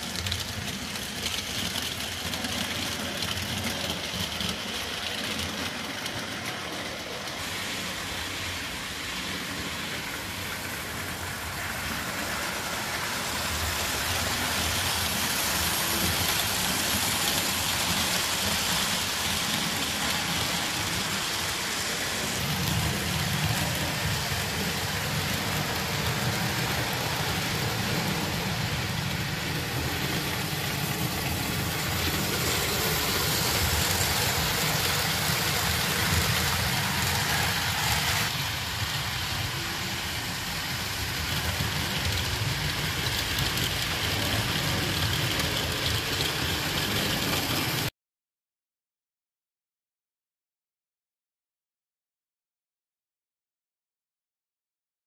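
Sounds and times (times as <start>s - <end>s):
model train wheels rumbling on rails: 0.0s - 47.9s.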